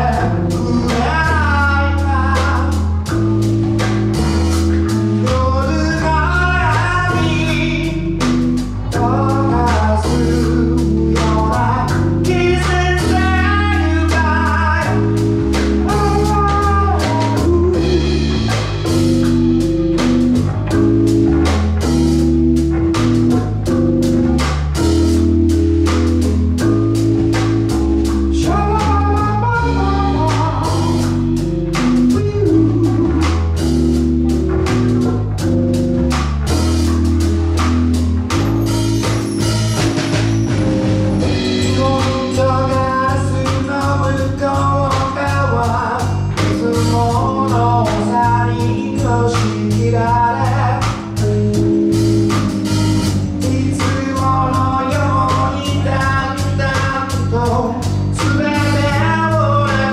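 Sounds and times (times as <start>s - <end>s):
man singing: 0.0s - 3.2s, 4.2s - 19.0s, 28.0s - 35.0s, 41.2s - 51.7s, 53.2s - 59.9s
live band playing: 0.0s - 59.9s.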